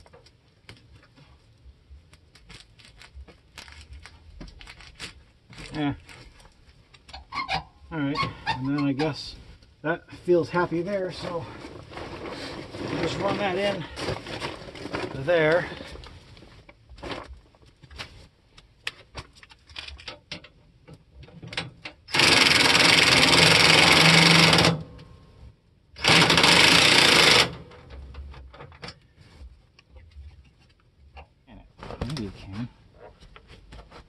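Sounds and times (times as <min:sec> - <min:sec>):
cordless power drill running: 0:22.1 - 0:24.8, 0:26.0 - 0:27.5.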